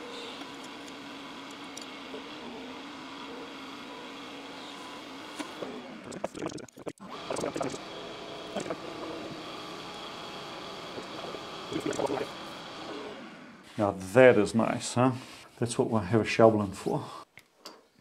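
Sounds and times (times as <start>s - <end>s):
lathe machine hum: 0.0s - 6.1s, 7.0s - 13.7s.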